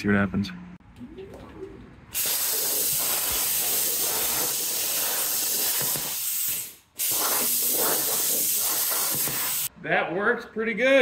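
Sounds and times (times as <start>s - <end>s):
plasma cutter hissing: 2.2s - 9.7s.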